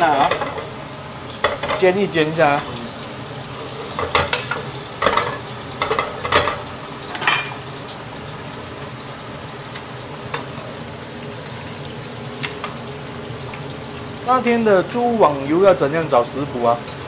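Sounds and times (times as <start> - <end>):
fish frying in oil: 0.0 - 17.0
metal ladle clattering against pot: 4.0 - 7.6.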